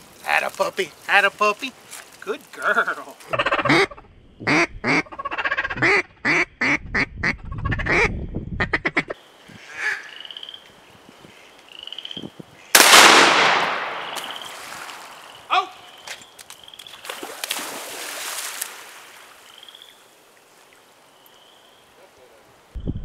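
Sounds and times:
shotgun shot with echo: 0:12.8 - 0:14.5
dog splashing into water: 0:16.8 - 0:19.5.

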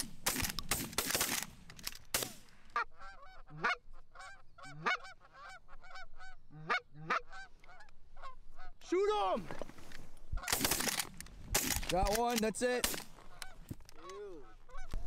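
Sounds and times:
shotgun shot: 0:02.1 - 0:02.4
geese honking: 0:02.7 - 0:08.8, 0:13.2 - 0:15.0.

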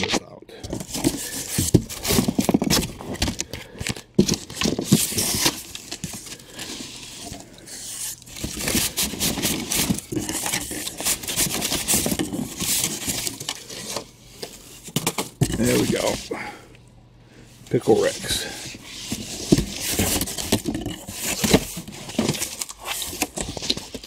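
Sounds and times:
cardboard scraping and rustling: 0:00.0 - 0:16.3, 0:17.8 - 0:24.0.

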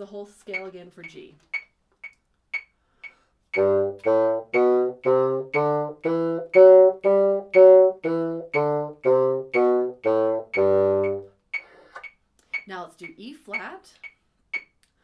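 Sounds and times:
metronome clicking: 0:00.5 - 0:15.0
bassoon playing a scale: 0:03.5 - 0:11.4.

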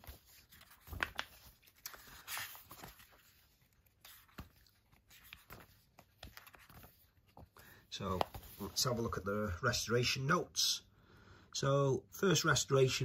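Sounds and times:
paper pages rustling: 0:00.0 - 0:09.6.

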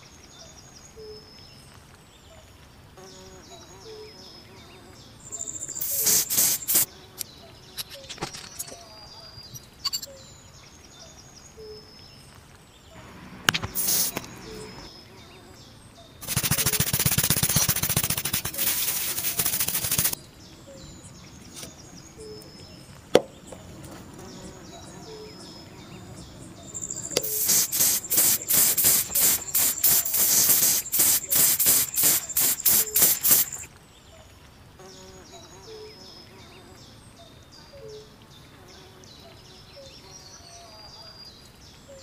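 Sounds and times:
metal parts scraping and rattling: 0:07.8 - 0:08.8.

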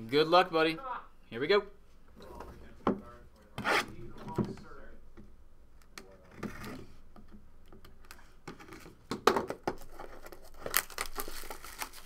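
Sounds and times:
plastic wrap rustling: 0:09.8 - 0:12.0.

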